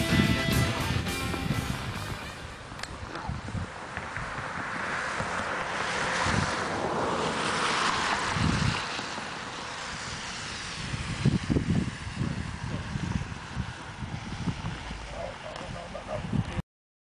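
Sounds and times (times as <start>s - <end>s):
low thumps: 0.0s - 2.5s
wind buffeting microphone: 0.0s - 16.6s.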